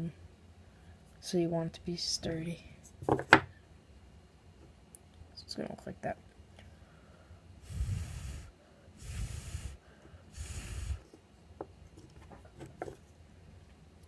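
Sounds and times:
breath puffs on microphone: 0:07.6 - 0:11.1.

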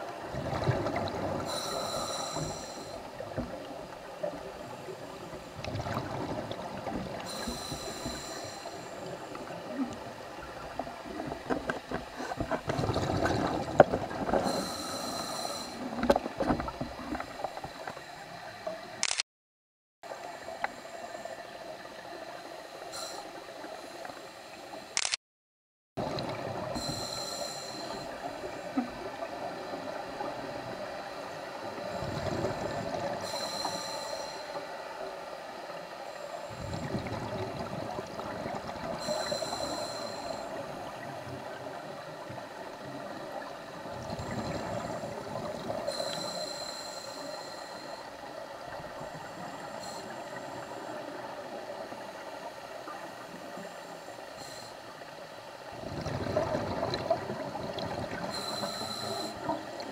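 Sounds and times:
steady underwater hiss: 0:00.0 - 0:19.0, 0:20.1 - 0:25.0, 0:26.0 - 0:59.9
diver inhaling through regulator: 0:01.4 - 0:03.1, 0:07.2 - 0:09.3, 0:14.4 - 0:16.0, 0:26.8 - 0:28.8, 0:32.1 - 0:34.7, 0:39.0 - 0:40.8, 0:45.9 - 0:48.2, 0:54.2 - 0:54.9, 0:58.2 - 0:59.6
bubbling exhalations: 0:36.5 - 0:39.0, 0:55.8 - 0:58.4.

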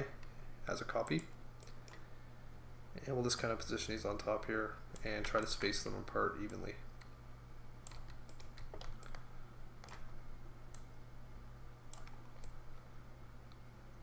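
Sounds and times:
low electrical hum: 0:00.0 - 0:14.0
mouse and keyboard clicks: 0:09.8 - 0:10.0, 0:11.9 - 0:12.6.

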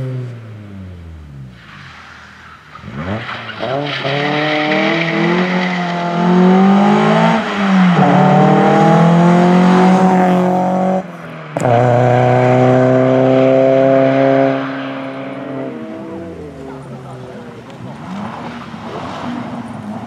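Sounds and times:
car engine accelerating hard: 0:02.7 - 0:20.0.

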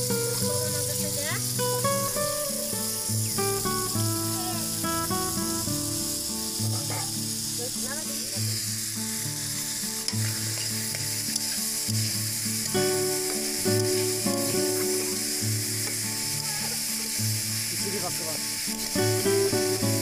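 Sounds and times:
rice sizzling in a pan: 0:00.0 - 0:20.0
metal spatula scraping: 0:06.7 - 0:07.3.

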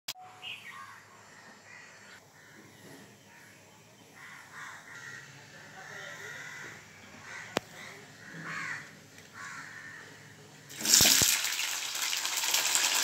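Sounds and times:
faint bird calls: 0:00.2 - 0:10.5.

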